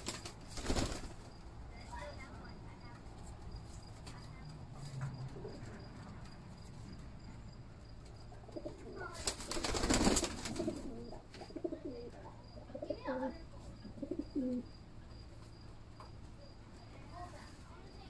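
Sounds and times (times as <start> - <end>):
pigeons cooing: 4.8 - 6.2, 8.4 - 14.8.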